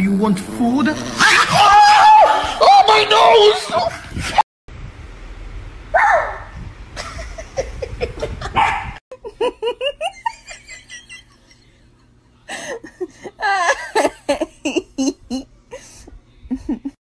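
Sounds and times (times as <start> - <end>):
small dogs barking: 8.5 - 9.0
people laughing: 9.2 - 15.4, 16.5 - 17.0.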